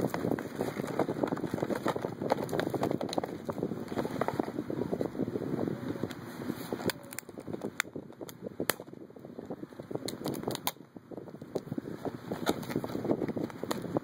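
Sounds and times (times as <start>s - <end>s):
cardboard rustling and scraping: 0.0s - 5.1s, 12.0s - 14.0s
sharp clicks and snaps: 10.0s - 10.8s.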